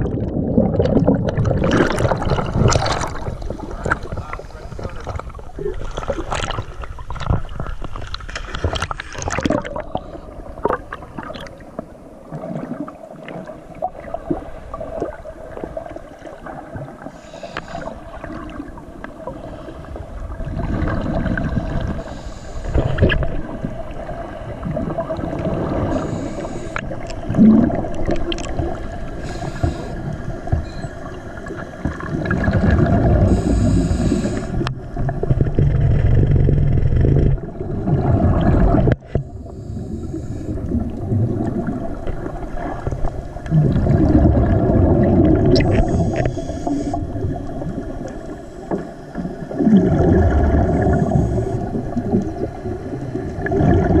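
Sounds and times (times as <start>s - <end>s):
regulator bubbles rushing: 0.0s - 7.7s, 8.6s - 11.6s, 26.8s - 28.9s, 30.6s - 39.3s, 40.5s - 46.4s, 49.2s - 54.0s
water splashing: 0.0s - 36.2s, 40.5s - 54.0s.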